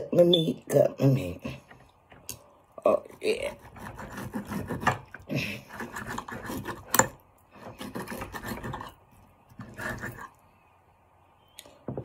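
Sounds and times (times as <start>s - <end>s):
knife sawing through meat: 3.0s - 9.0s, 9.6s - 10.4s.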